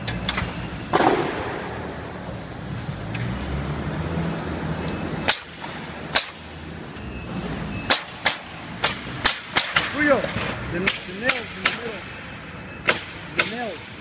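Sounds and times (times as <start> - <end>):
nail gun firing into wood: 7.9 - 10.0, 12.9 - 13.6.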